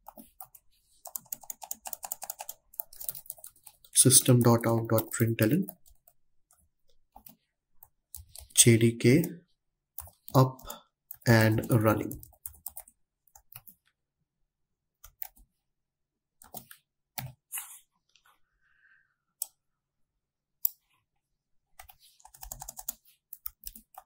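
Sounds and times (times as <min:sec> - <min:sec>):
typing on computer keyboard: 0:00.0 - 0:06.2, 0:10.0 - 0:13.8, 0:21.8 - 0:24.0.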